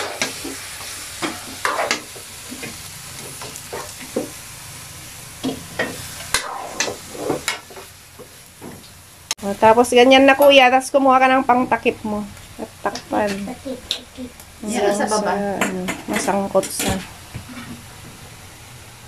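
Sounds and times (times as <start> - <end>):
meat and onions sizzling in a wok: 0.0 - 19.0
metal spoon scraping a pan: 1.2 - 4.2, 5.4 - 7.8, 15.6 - 17.8.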